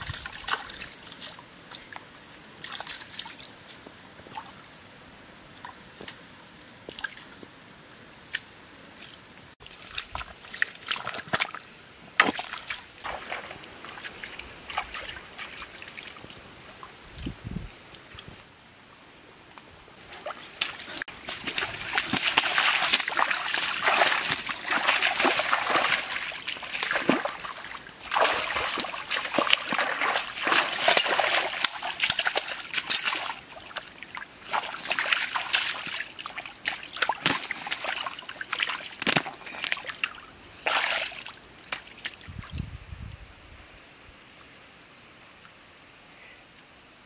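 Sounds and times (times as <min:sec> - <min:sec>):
splashing in shallow stream: 0:00.0 - 0:04.5, 0:06.9 - 0:07.4, 0:09.6 - 0:16.6, 0:20.0 - 0:42.6.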